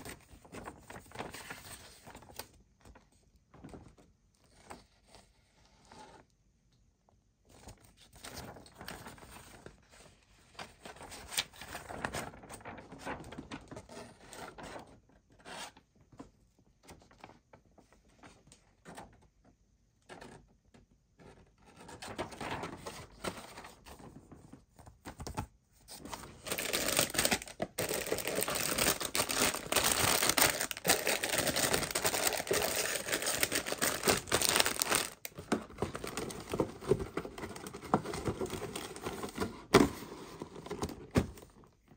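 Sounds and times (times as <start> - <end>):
paper pages turning: 7.6 - 14.9, 21.7 - 39.9
packaging crinkling: 26.0 - 39.3.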